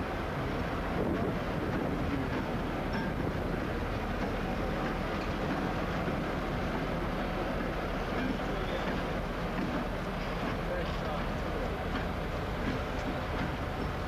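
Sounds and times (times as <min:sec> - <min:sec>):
diesel locomotive engine: 0:00.0 - 0:14.0.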